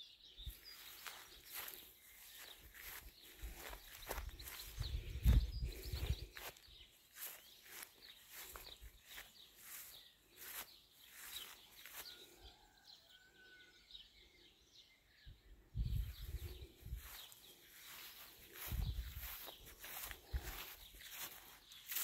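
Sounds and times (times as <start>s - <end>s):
birds chirping: 0.0s - 22.0s
soft footsteps: 0.5s - 12.1s, 16.3s - 22.0s.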